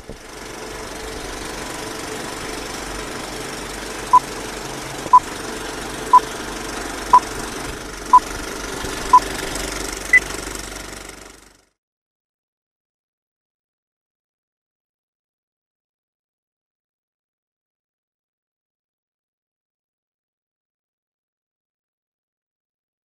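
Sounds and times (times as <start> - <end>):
film projector clatter: 0.0 - 11.6.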